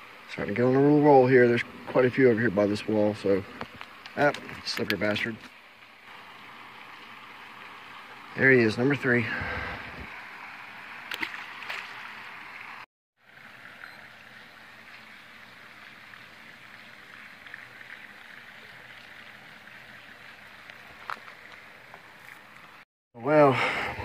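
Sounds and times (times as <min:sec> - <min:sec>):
flowing water rushing: 0:00.0 - 0:24.0
small splash in water: 0:11.0 - 0:12.7.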